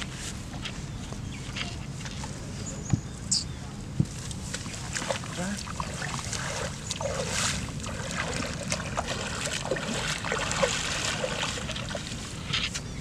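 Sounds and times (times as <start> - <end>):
water dripping and splashing: 4.5 - 12.3.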